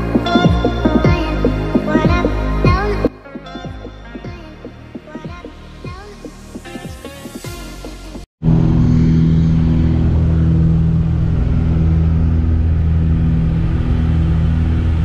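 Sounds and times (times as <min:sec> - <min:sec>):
propeller aircraft engine drone: 0:08.4 - 0:15.0.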